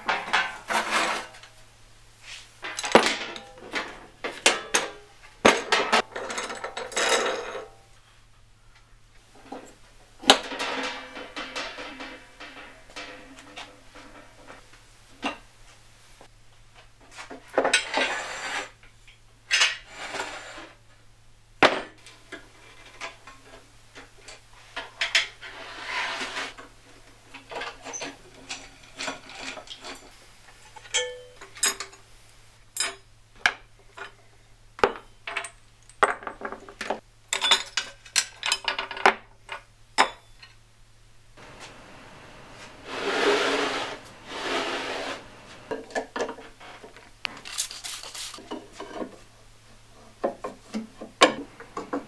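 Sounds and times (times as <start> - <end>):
metal scraping and sliding: 0.1 - 1.5, 10.3 - 14.7, 17.7 - 18.8, 19.8 - 20.8, 25.2 - 26.7, 41.4 - 49.1
metal parts clinking: 37.3 - 39.0, 47.3 - 48.4.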